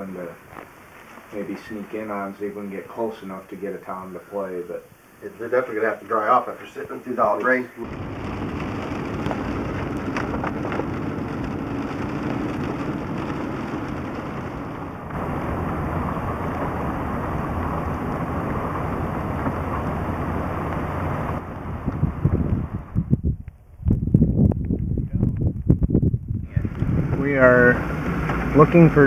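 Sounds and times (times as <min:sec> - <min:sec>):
road and engine noise: 0:07.8 - 0:23.1, 0:26.5 - 0:29.0.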